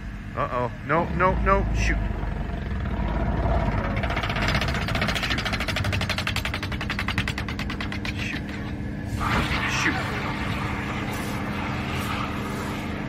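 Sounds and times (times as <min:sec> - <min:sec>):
propeller plane: 0:01.2 - 0:09.2
rapid mechanical clatter: 0:01.2 - 0:13.0.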